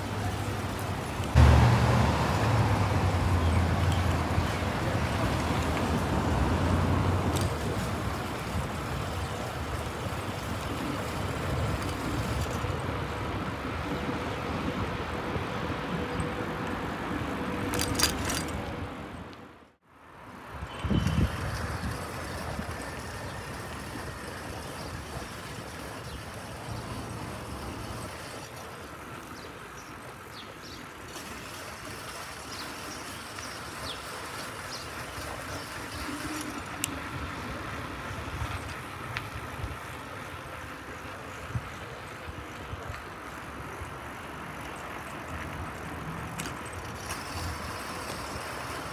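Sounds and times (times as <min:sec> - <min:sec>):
distant traffic: 0:00.0 - 0:48.9.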